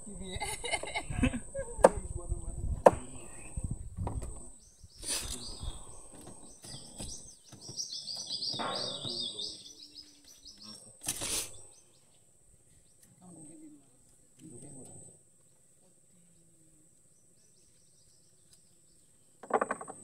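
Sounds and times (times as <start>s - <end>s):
small birds chirping: 0.0s - 20.0s
short scrapes: 11.1s - 11.6s.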